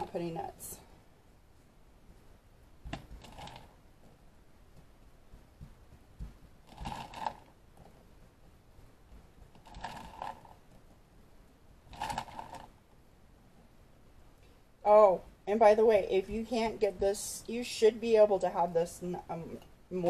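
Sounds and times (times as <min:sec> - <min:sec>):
hands rubbing and patting dough: 0:00.0 - 0:17.4
faint taps: 0:04.0 - 0:06.6.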